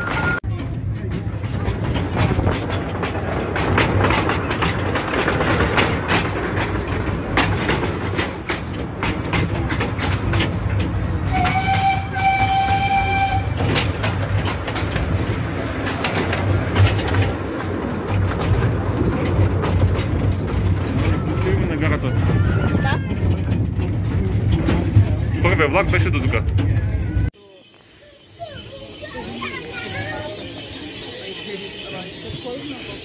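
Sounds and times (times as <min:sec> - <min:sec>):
train wheels clattering over rail joints: 0:00.0 - 0:27.0
steam train rumble: 0:00.0 - 0:33.0
steam train whistle: 0:11.3 - 0:13.7.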